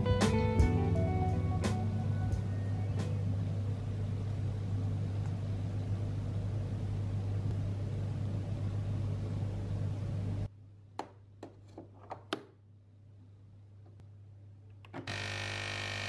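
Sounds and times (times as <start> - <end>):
espresso machine humming: 0.0 - 10.5, 15.0 - 16.0.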